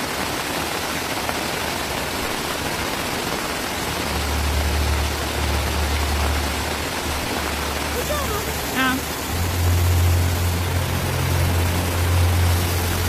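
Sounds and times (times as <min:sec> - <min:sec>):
fast-flowing floodwater: 0:00.0 - 0:13.0
heavy rain: 0:00.0 - 0:13.0
deep low rumble: 0:03.9 - 0:13.0.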